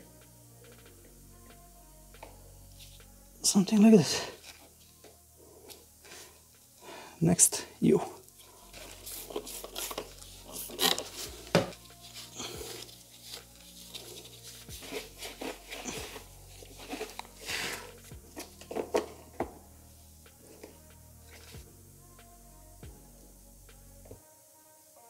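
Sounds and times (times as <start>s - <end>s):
cloth rubbing surface: 8.5s - 18.5s.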